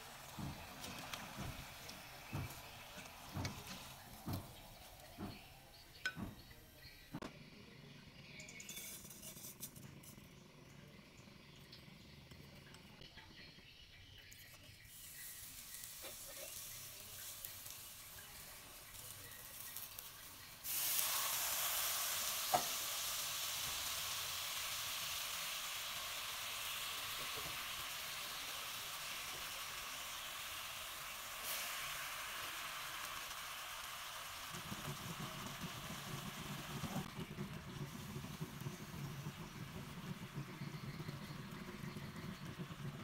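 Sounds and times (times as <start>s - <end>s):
sugar sizzling in a hot wok: 0.0s - 7.1s, 7.8s - 43.0s.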